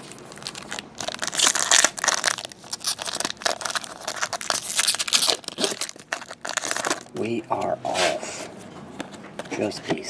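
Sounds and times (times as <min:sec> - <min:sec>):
foil pack crinkling: 0:00.0 - 0:07.2.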